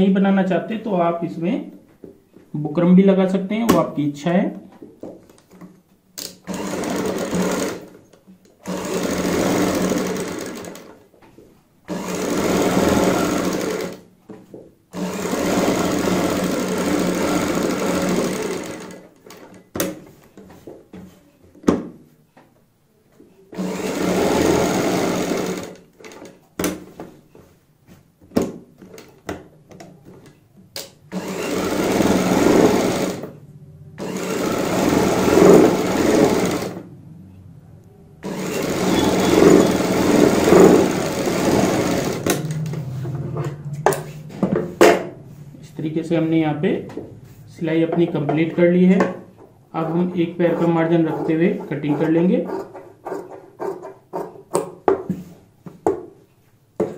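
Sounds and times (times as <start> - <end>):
sewing machine stitching: 6.2 - 8.0, 8.6 - 11.0, 11.9 - 14.1, 14.9 - 19.6, 23.6 - 26.4, 31.1 - 33.4, 34.0 - 36.9, 38.2 - 42.8.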